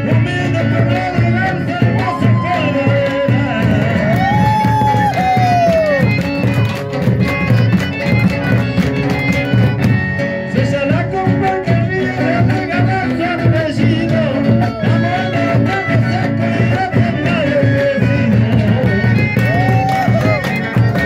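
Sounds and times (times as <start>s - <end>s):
man singing into a microphone: 0.0s - 6.0s, 10.4s - 21.0s
strummed acoustic guitar: 0.0s - 21.0s.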